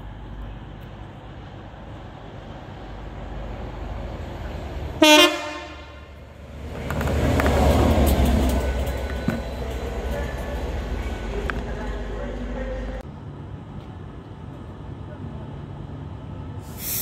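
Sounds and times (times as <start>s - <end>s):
locomotive engine and wheels: 0.0s - 17.0s
locomotive horn toot: 5.0s - 6.2s.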